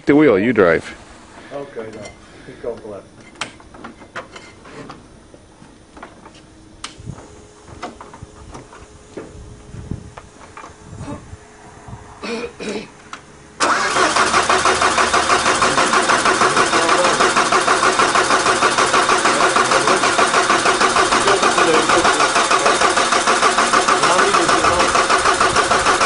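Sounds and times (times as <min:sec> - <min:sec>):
diesel engine starting and running: 0:13.6 - 0:26.0.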